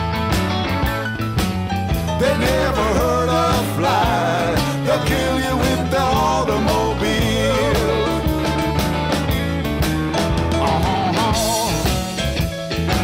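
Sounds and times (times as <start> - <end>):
rock music: 0.0 - 13.0
person singing: 2.2 - 8.7, 10.6 - 12.1.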